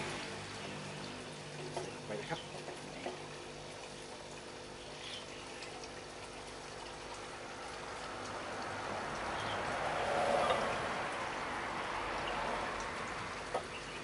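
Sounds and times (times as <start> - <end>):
water trickling and splashing: 0.0 - 14.0.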